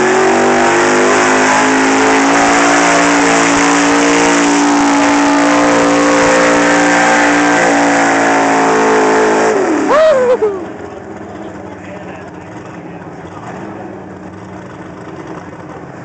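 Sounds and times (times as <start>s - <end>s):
pickup engine at high revs: 0.0s - 16.0s
spinning tyres throwing dirt: 12.4s - 16.0s.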